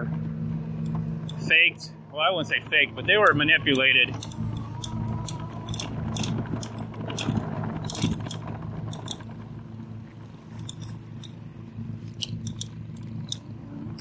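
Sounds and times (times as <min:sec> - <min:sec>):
steady low hum: 0:00.0 - 0:14.0
bike rattling over bumpy grass: 0:05.1 - 0:11.0.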